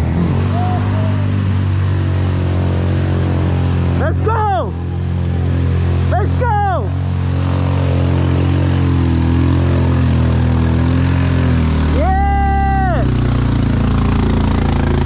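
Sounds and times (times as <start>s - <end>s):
vehicle engine running: 0.0s - 15.0s
person shouting: 0.4s - 1.4s, 4.0s - 5.0s, 6.1s - 6.9s, 11.9s - 13.2s.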